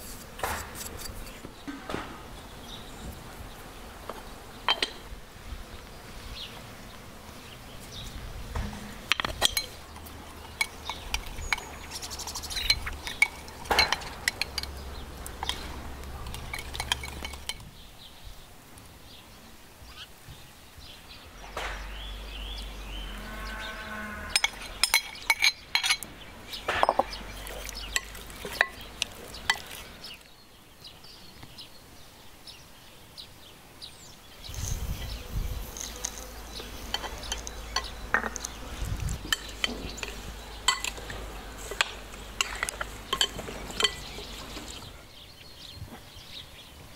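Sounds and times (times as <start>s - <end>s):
metal spoon clinking on glass bowl: 16.3s - 17.6s, 24.4s - 26.0s, 39.3s - 41.1s, 41.7s - 44.2s.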